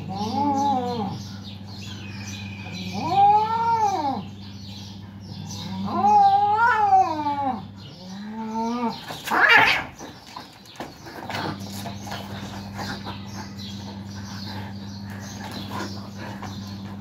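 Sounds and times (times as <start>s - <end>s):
cats yowling: 0.0s - 1.2s, 2.3s - 4.4s, 5.5s - 10.0s
cats screeching while fighting: 2.7s - 4.2s, 5.8s - 7.6s, 8.5s - 10.0s.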